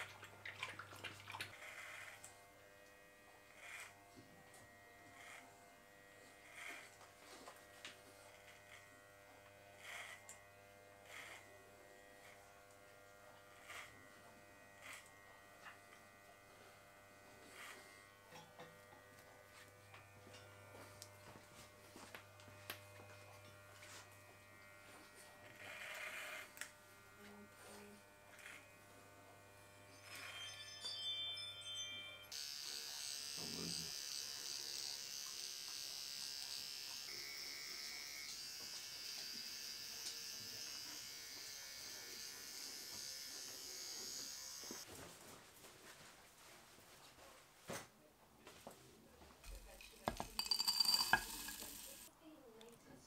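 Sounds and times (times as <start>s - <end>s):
electric hair clippers buzzing: 1.5s - 44.9s, 50.3s - 52.1s.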